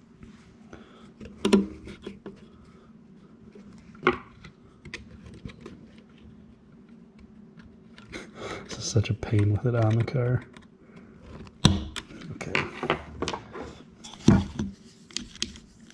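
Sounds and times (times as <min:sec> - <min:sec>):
faint steady hum: 0:00.0 - 0:15.9
small metallic clicks and taps: 0:09.2 - 0:10.7.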